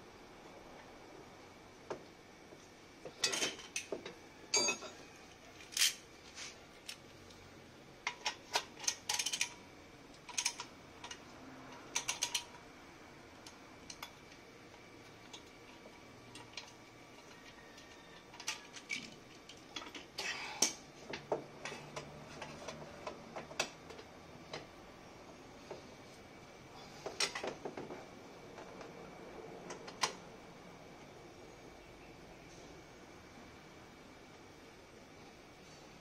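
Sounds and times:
metal parts clicking and clinking: 4.5s - 5.0s, 5.6s - 6.0s, 8.1s - 12.6s, 16.3s - 20.8s.

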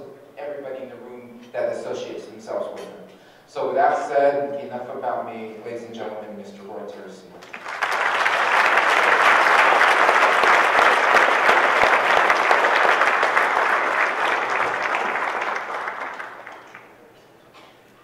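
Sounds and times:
audience applauding: 7.4s - 17.2s.

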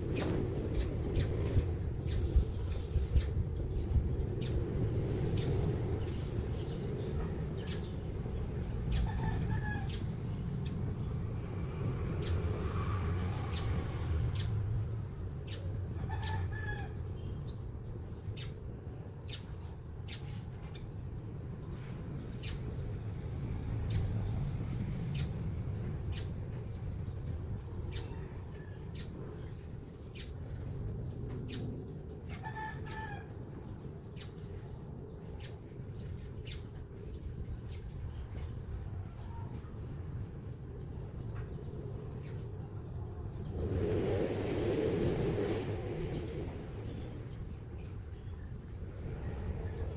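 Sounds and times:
low rumble: 20.6s - 49.9s.

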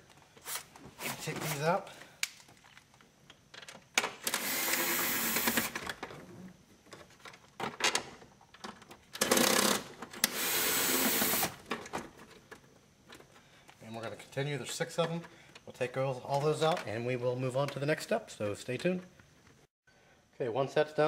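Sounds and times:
cordless power screwdriver running: 4.3s - 5.8s, 10.3s - 11.5s.

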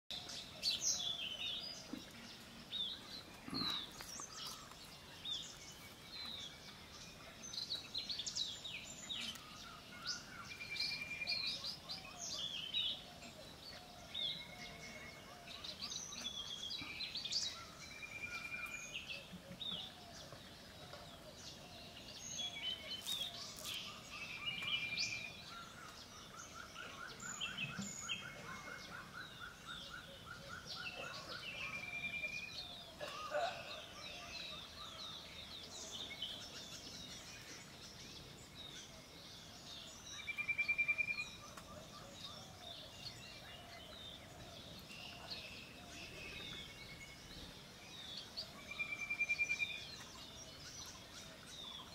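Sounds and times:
songbirds chirping and whistling: 0.1s - 51.9s.

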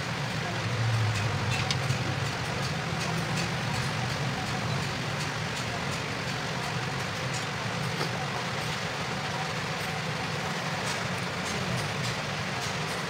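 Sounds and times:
low rumbling background noise: 0.0s - 13.0s.

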